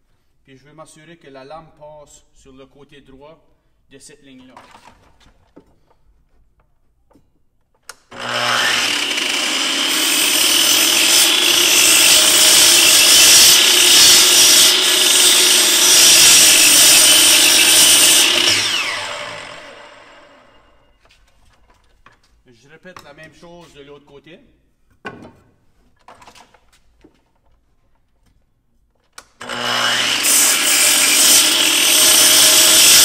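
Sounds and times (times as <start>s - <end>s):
miter saw motor whining: 8.1s - 20.7s, 29.4s - 33.0s
saw blade cutting wood: 8.1s - 20.7s, 29.4s - 33.0s.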